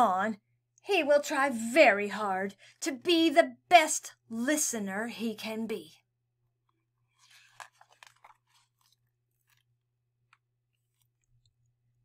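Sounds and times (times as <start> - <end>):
paper page rustling: 7.1 - 9.8.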